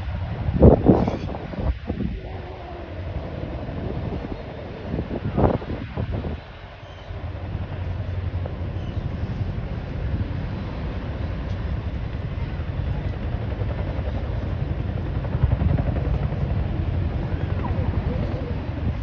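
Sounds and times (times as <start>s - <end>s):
helicopter rotor beat: 0.0s - 19.0s.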